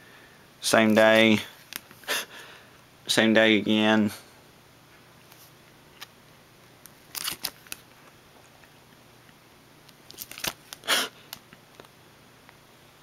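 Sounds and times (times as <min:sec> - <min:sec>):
photographs rustling and clicking: 0:07.0 - 0:08.0, 0:10.0 - 0:11.9.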